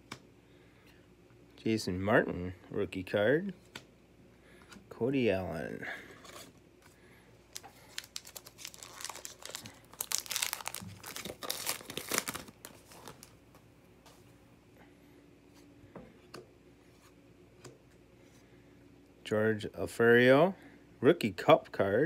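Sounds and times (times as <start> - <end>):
card pack wrapper crinkling and tearing: 7.5 - 13.4.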